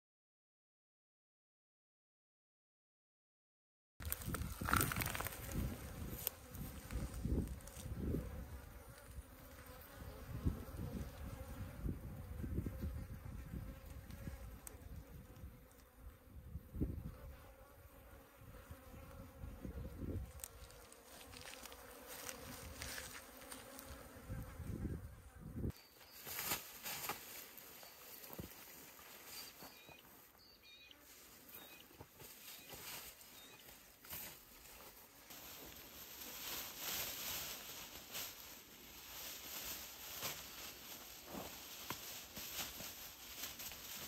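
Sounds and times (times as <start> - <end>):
wind rumbling on microphone: 4.0 - 8.6, 10.2 - 15.6, 16.3 - 17.3, 19.4 - 20.4
flies buzzing: 4.0 - 44.0.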